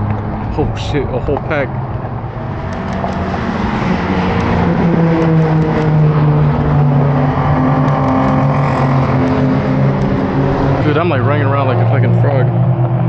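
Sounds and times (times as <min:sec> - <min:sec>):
racing cars passing at speed: 0:00.0 - 0:13.0.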